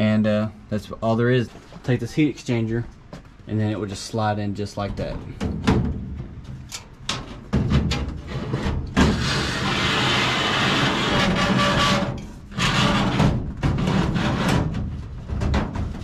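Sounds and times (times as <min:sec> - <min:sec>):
metal-on-metal scrape: 0:08.1 - 0:14.6.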